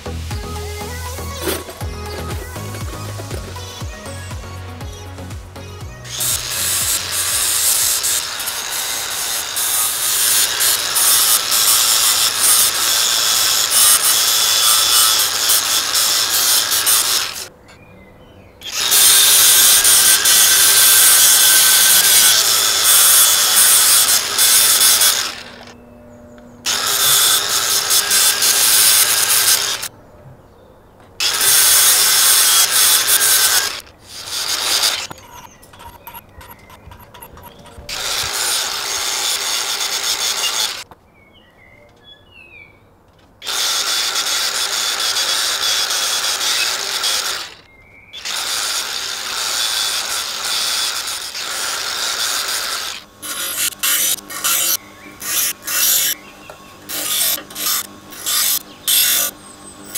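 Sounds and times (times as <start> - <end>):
angle grinder grinding steel: 0.0 - 17.5, 18.6 - 25.9, 26.6 - 29.9, 31.2 - 40.9, 43.4 - 59.9.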